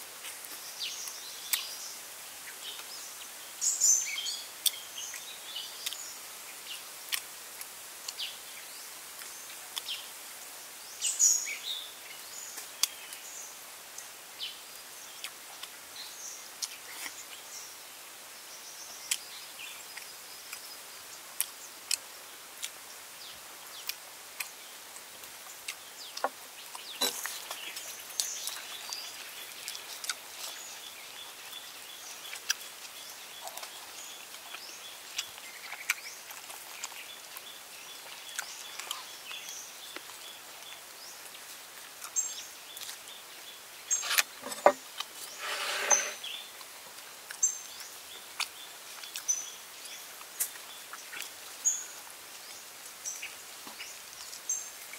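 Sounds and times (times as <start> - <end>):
cleaver knocking on wooden board: 44.4 - 44.8.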